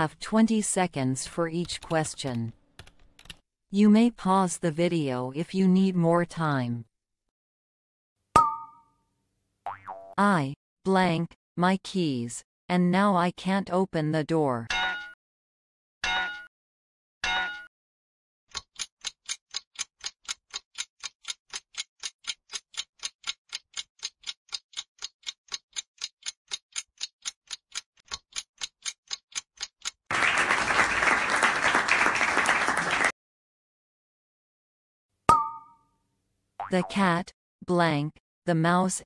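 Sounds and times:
clock ticking: 18.5 - 30.1
applause: 30.1 - 33.1.

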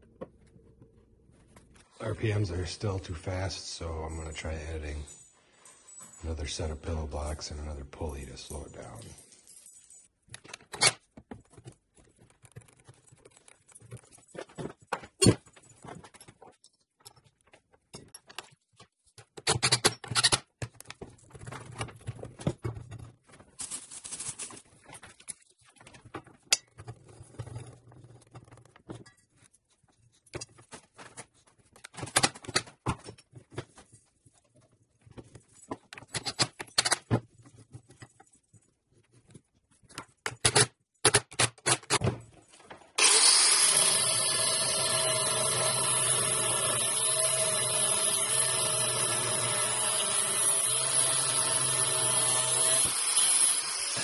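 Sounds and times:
metal parts and tools clinking: 19.4 - 21.8, 35.2 - 38.4.

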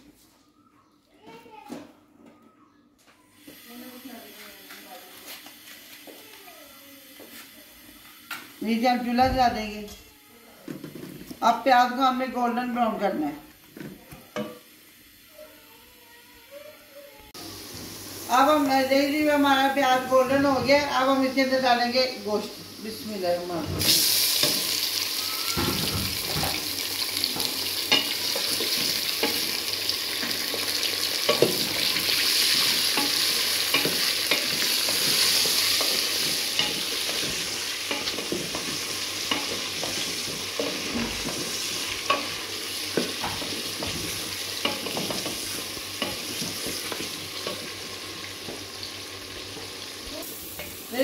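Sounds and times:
meat sizzling in hot oil: 17.4 - 51.0.

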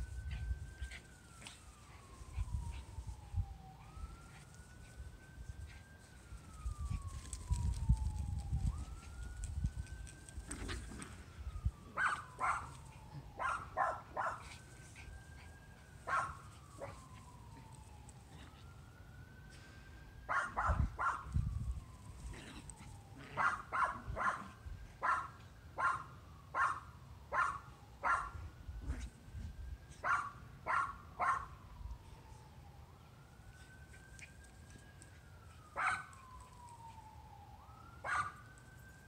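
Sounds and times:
distant siren wailing: 0.0 - 39.0
small dogs barking: 12.0 - 12.8, 13.4 - 14.4, 16.0 - 17.0, 20.3 - 21.3, 23.4 - 28.4, 30.0 - 31.5, 35.8 - 36.2, 38.0 - 38.4.

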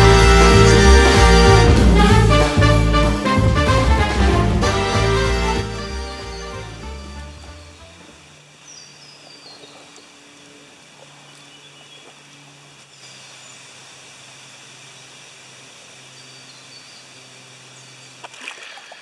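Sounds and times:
birds chirping: 5.4 - 13.7.

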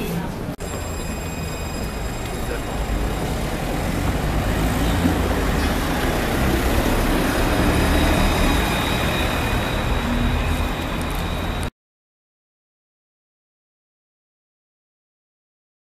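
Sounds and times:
steel wheels rumbling on rails: 0.0 - 11.7
faint high whine: 0.6 - 3.6.

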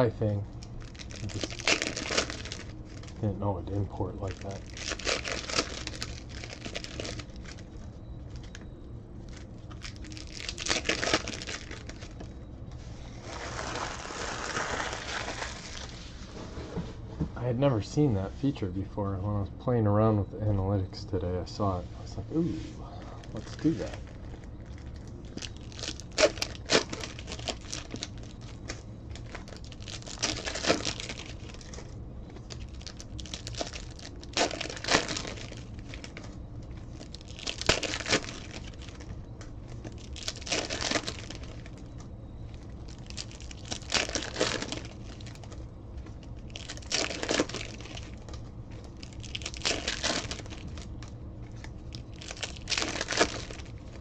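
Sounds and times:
wrappers torn and crumpled: 0.0 - 12.4, 13.1 - 16.2, 23.1 - 54.0
steady low hum: 0.0 - 54.0.

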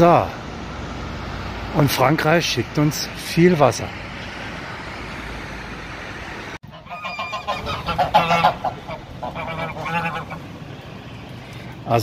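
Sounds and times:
geese honking: 6.6 - 11.7.

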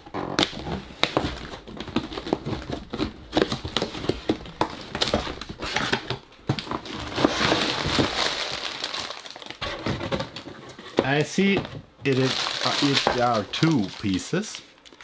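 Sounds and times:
plastic bags crinkling: 6.6 - 10.5, 11.1 - 15.0.

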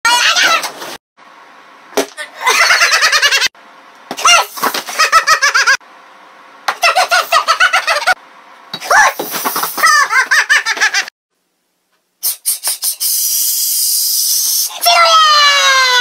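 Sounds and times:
shrill vocal cries: 14.5 - 16.0.

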